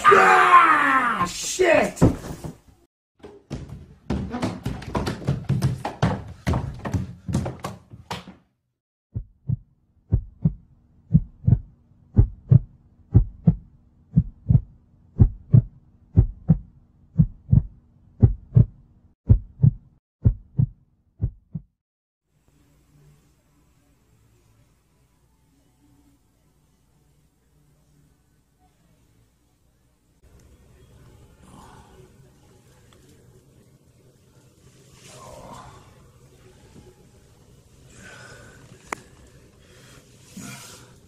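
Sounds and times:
heartbeat thumps: 9.1s - 21.8s.

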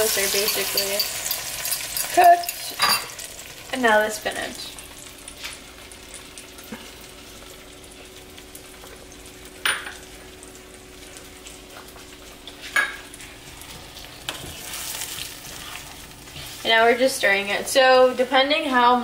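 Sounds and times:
spatula in pan: 0.0s - 3.1s, 13.7s - 18.4s
food sizzling in pan: 0.0s - 19.0s.

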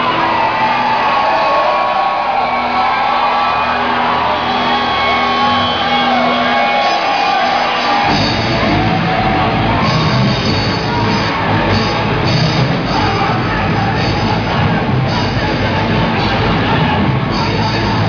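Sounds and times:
crowd shouting along: 0.0s - 18.0s
live heavy rock band: 3.8s - 18.0s.

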